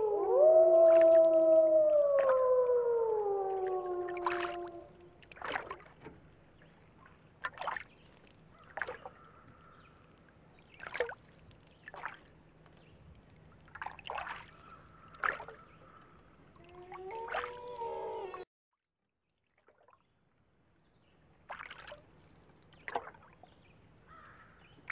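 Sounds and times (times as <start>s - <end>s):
wolf howling: 0.0s - 5.1s, 16.6s - 18.5s
faint steady hum: 0.0s - 7.4s
soft drip-like sounds: 3.5s - 18.2s, 19.2s - 20.5s, 21.1s - 23.8s.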